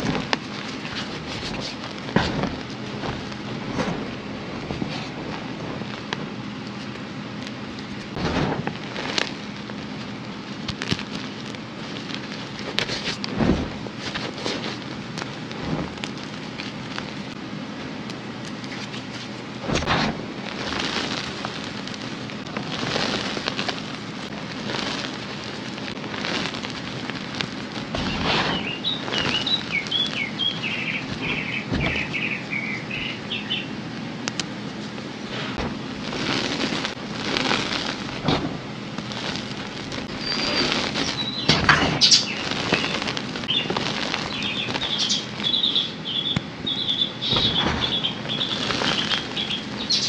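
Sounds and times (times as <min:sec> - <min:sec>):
crackling hiss: 0:00.0 - 0:50.0
powdery chalk crunching: 0:00.0 - 0:50.0
high chirps: 0:40.2 - 0:50.0.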